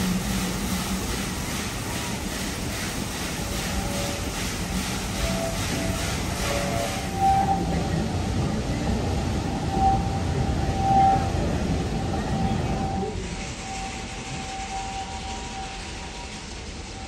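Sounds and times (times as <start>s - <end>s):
train cars rumbling on rails: 0.0s - 17.0s
wheels squealing: 5.1s - 15.8s.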